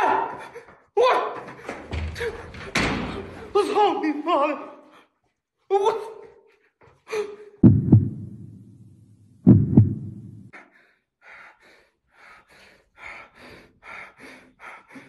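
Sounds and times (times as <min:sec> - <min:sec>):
heartbeat double thump: 0:07.6 - 0:10.5
low rumble: 0:07.6 - 0:10.5.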